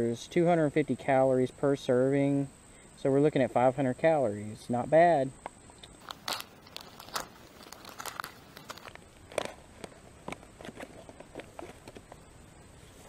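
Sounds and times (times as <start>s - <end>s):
foil pouch crinkling and tearing: 6.0s - 9.6s.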